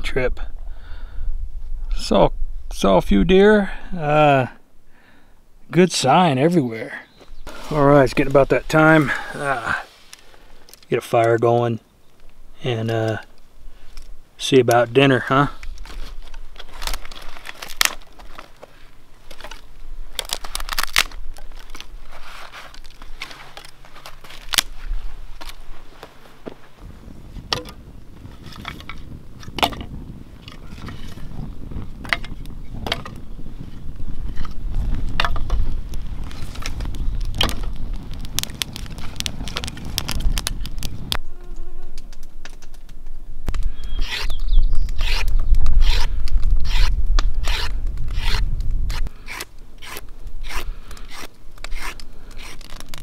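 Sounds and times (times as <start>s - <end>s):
twigs snapping and rustling: 12.1s - 26.2s, 34.2s - 41.2s, 41.9s - 53.0s
campfire crackling and popping: 31.4s - 41.3s, 41.9s - 43.8s, 44.8s - 53.0s.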